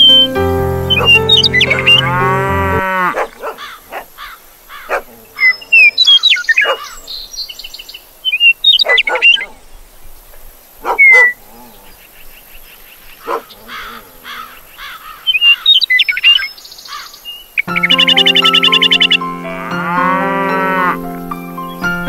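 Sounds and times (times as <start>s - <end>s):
bird chirps: 0.0s - 2.2s, 5.4s - 9.5s, 14.8s - 19.5s, 20.7s - 22.0s
cow mooing: 1.9s - 3.3s, 19.4s - 21.2s.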